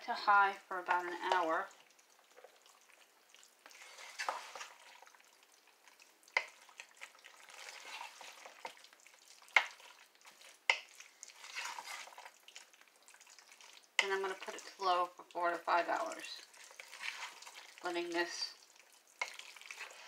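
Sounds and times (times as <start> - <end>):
spoon stirring and scraping: 0.8 - 20.0.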